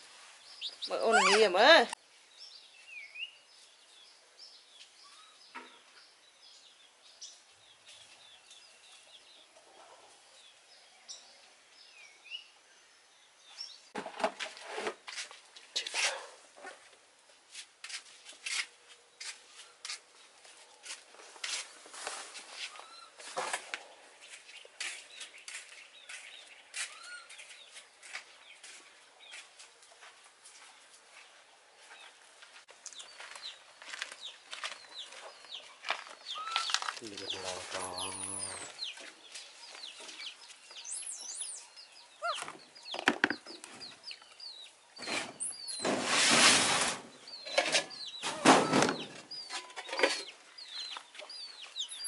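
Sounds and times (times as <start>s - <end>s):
small birds chirping: 0.0s - 14.0s, 17.9s - 46.0s, 47.1s - 52.0s
chicks peeping: 32.9s - 45.8s, 47.3s - 52.0s.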